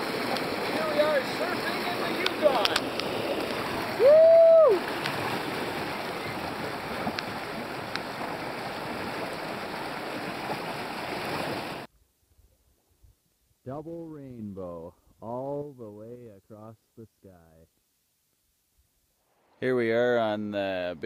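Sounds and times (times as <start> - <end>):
river water rushing over rapids: 0.0 - 11.9.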